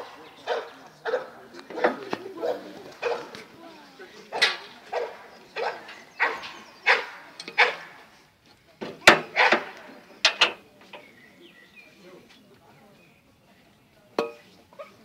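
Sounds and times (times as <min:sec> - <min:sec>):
dog barking: 0:00.4 - 0:03.3, 0:04.9 - 0:07.9, 0:09.4 - 0:09.7
sharp crack: 0:09.1 - 0:09.9.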